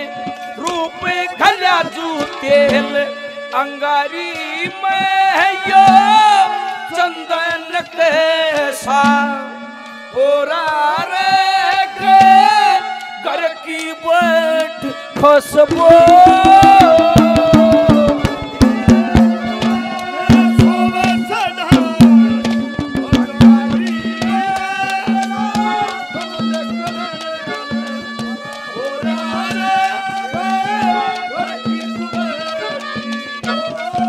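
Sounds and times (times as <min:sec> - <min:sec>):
wavering folk melody: 0:00.0 - 0:34.0
fast hand drum strokes: 0:15.6 - 0:34.0.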